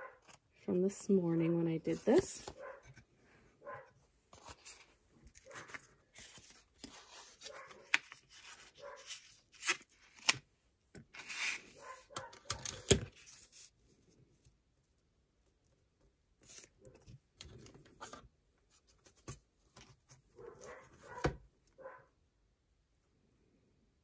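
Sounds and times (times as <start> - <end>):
dogs barking: 2.6 - 2.9, 3.6 - 4.0, 20.4 - 22.1.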